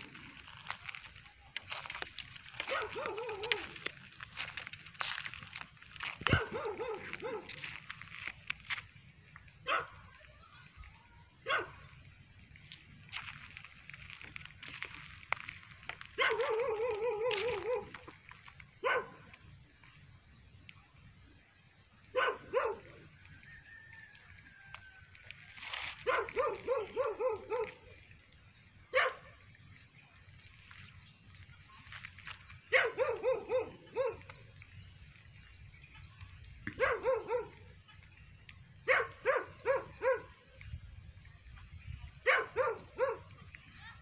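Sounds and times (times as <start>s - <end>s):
dog barking: 2.6s - 3.7s, 6.2s - 7.6s, 9.6s - 10.1s, 11.4s - 11.8s, 16.2s - 18.1s, 18.8s - 19.3s, 22.1s - 23.0s, 26.0s - 27.9s, 28.9s - 29.3s, 32.7s - 34.3s, 36.7s - 37.7s, 38.8s - 40.4s, 42.2s - 43.3s.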